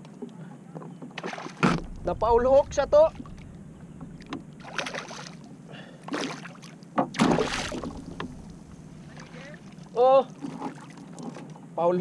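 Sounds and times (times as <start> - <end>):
fish splashing at the surface: 4.6 - 5.5, 6.1 - 8.3.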